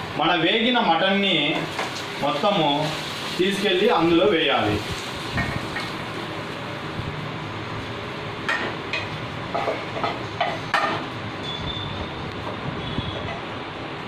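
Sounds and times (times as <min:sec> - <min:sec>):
steady hiss: 0:00.0 - 0:08.4.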